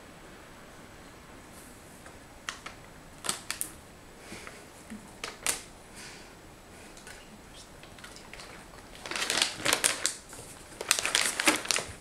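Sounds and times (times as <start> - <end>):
plastic bag crinkling and clicking: 2.0 - 3.8, 5.2 - 5.7, 7.8 - 12.0.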